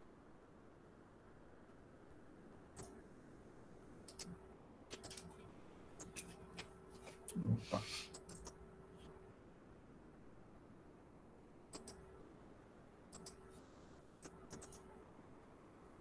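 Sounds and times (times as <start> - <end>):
computer mouse clicking: 2.8 - 3.0, 4.0 - 5.4, 8.1 - 8.6, 11.7 - 12.0, 13.1 - 13.6, 14.2 - 14.9.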